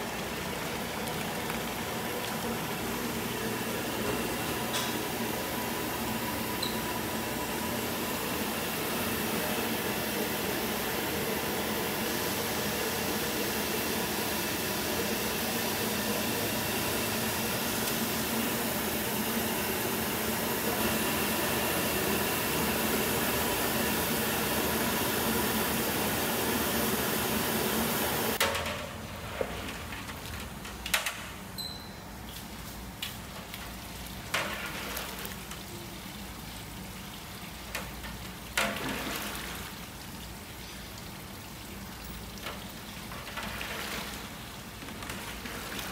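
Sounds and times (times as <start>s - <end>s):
machine whirring hum: 0.0s - 33.0s.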